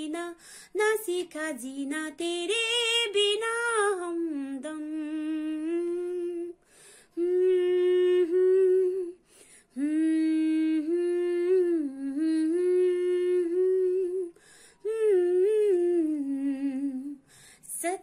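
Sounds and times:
woman humming a melody: 7.2 - 9.2, 9.8 - 14.3, 14.9 - 17.2.

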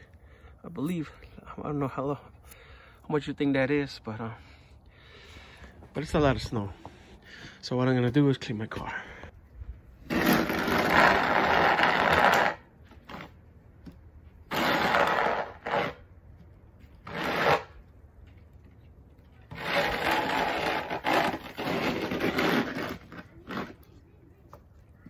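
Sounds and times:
snow shovel scraping: 10.0 - 13.3, 14.5 - 16.0, 17.0 - 17.8, 19.5 - 23.8.

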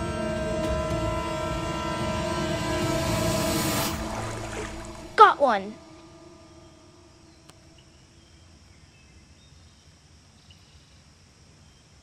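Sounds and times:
low rumble: 0.0 - 8.4.

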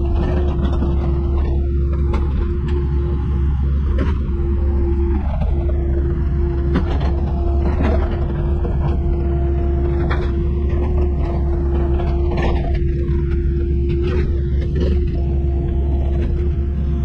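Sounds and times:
diesel engine rumbling: 0.0 - 17.0.

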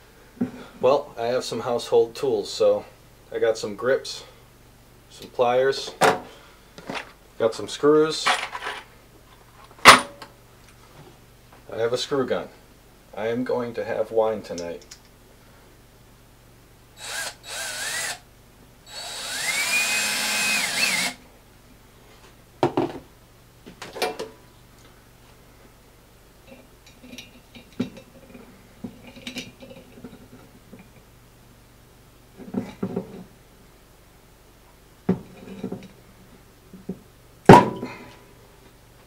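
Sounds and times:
cordless drill motor whine: 17.0 - 18.2, 18.9 - 21.2.

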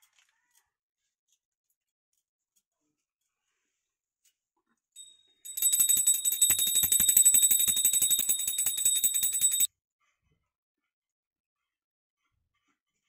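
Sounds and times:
brass hand bell ringing rapidly: 5.0 - 9.7.

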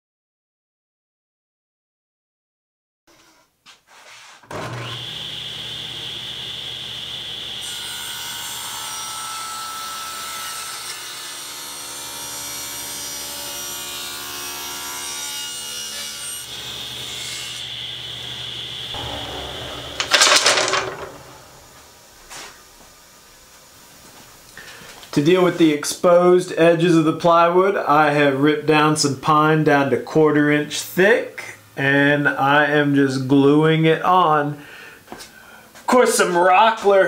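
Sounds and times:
table saw ripping boards: 4.4 - 6.2, 12.7 - 22.6
loud clatter: 19.0 - 22.5.

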